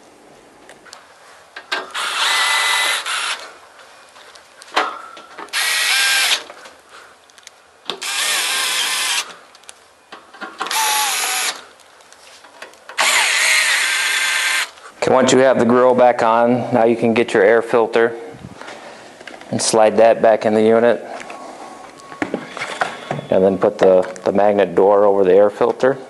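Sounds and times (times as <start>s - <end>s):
drill driving screws into metal: 1.7s - 3.5s, 5.5s - 6.5s, 7.9s - 9.3s, 10.6s - 11.6s, 13.0s - 14.7s.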